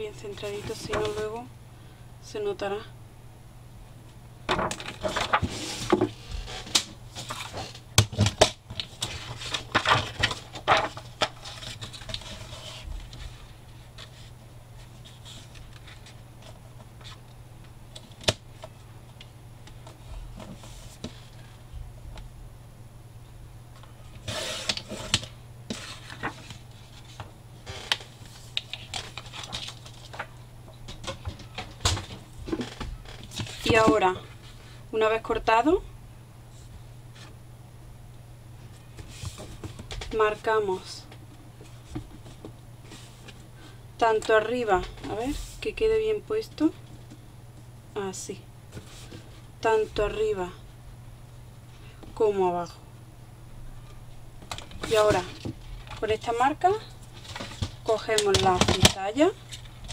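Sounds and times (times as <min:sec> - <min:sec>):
paper rustling: 0:08.8 - 0:17.2, 0:24.2 - 0:27.3, 0:27.9 - 0:30.4.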